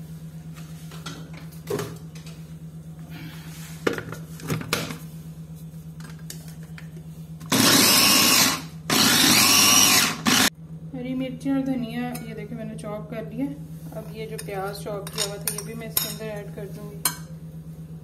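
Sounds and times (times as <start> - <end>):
electric chopper blades chopping: 7.5 - 10.5.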